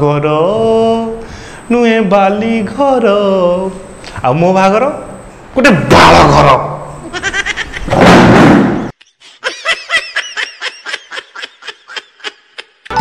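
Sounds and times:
loud noisy boom: 7.9 - 8.9.

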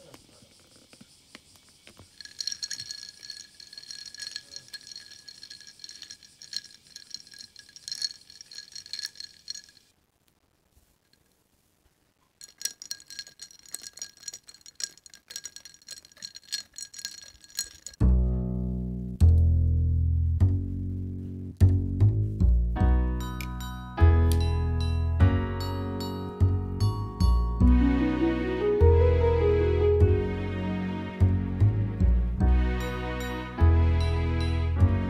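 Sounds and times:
ice cubes clinking in glass: 2.2 - 9.9, 12.4 - 18.0.

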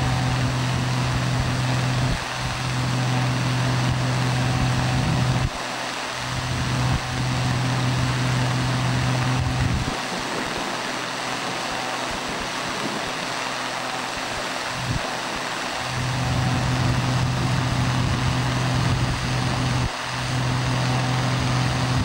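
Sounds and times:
machinery running: 0.0 - 22.0
low hum: 15.8 - 22.0.

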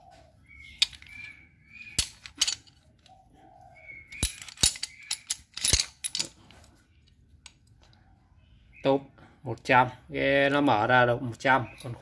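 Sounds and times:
ratcheting clamp clicking: 4.1 - 6.4.

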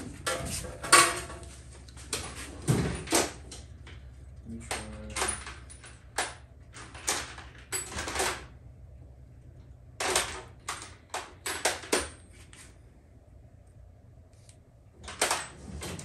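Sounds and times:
low steady hum: 0.0 - 16.0
metal parts clattering and scraping: 0.2 - 1.5.

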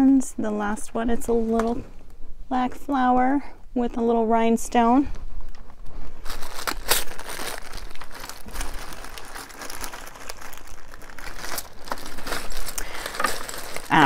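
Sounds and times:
plastic bag crinkling: 5.2 - 14.0.

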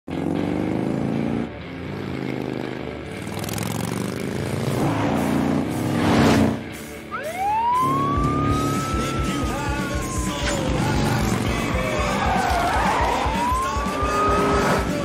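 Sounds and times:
motorcycle passing by: 0.1 - 6.6.

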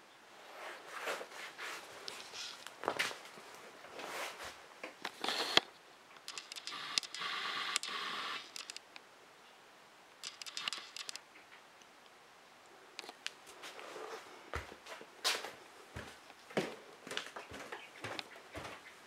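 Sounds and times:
camera handling rustling: 10.2 - 11.2.

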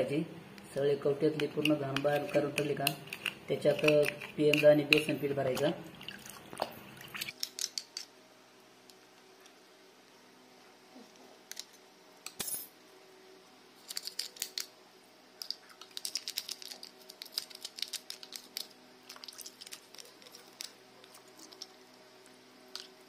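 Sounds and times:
toothbrush scrubbing crab shell: 1.5 - 5.2, 15.7 - 21.8.

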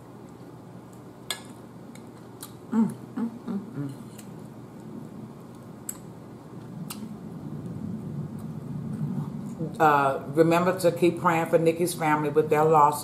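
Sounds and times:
person humming while chewing: 2.4 - 4.3.

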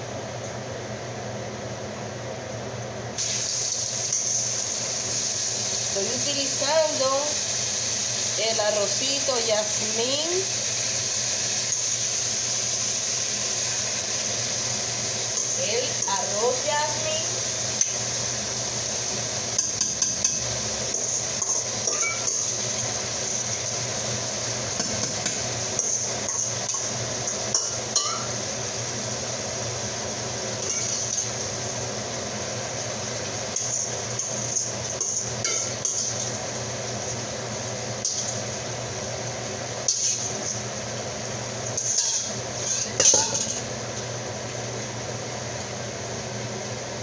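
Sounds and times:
steady background hum: 0.0 - 47.0
metal bowl clinking and knocking: 21.4 - 22.4, 42.8 - 43.6.

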